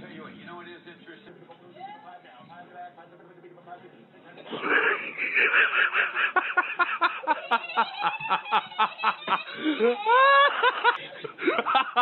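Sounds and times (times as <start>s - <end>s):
person laughing hard: 4.6s - 12.0s.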